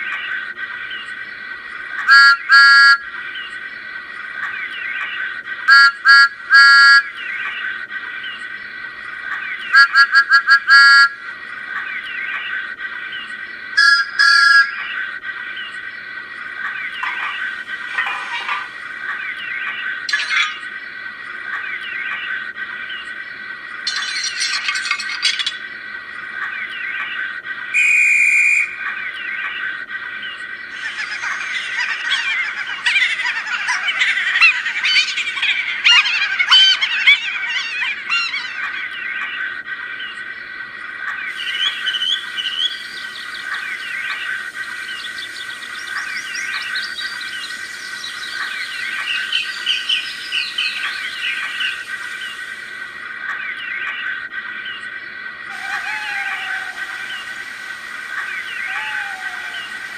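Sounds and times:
birds chirping and warbling: 0:00.0 - 0:59.9
steady high hum: 0:00.0 - 0:59.9
shrill whistle blast: 0:13.8 - 0:14.8, 0:27.8 - 0:28.8.

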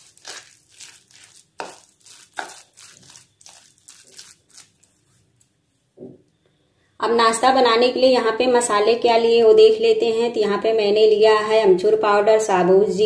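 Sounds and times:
spoon stirring thick batter: 0:00.0 - 0:05.4.

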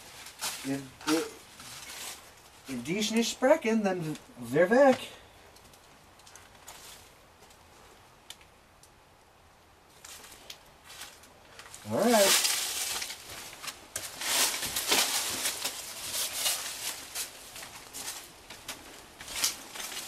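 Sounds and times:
footsteps crunching on gravel: 0:00.0 - 0:02.6, 0:10.0 - 0:20.0.

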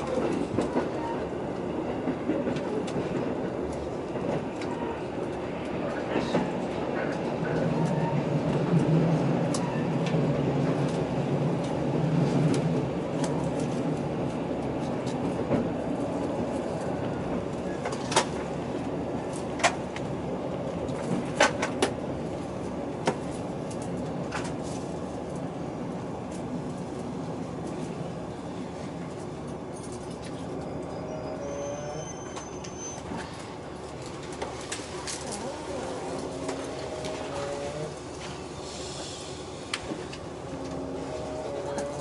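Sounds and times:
train wheels clicking and knocking: 0:00.0 - 0:14.0, 0:20.8 - 0:22.1
diesel railcar engine rumble: 0:00.0 - 0:42.0.

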